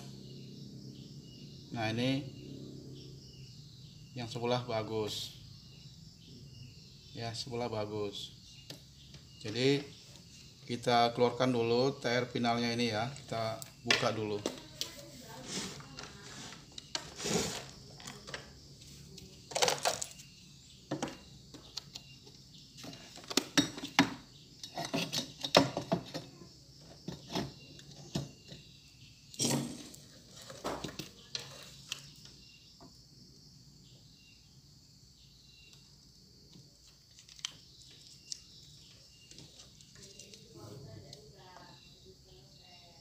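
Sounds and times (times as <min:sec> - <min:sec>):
tools clattering on workbench: 0:22.8 - 0:28.6, 0:29.4 - 0:32.1.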